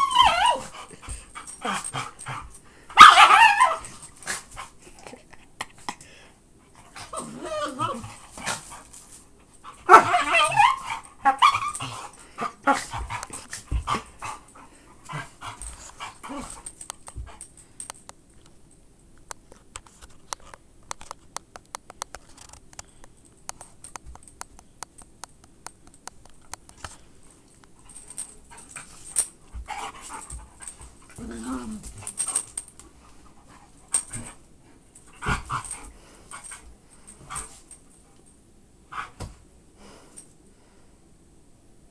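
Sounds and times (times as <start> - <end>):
dogs whining and yipping: 0.0 - 4.4, 7.0 - 8.8, 9.8 - 14.4.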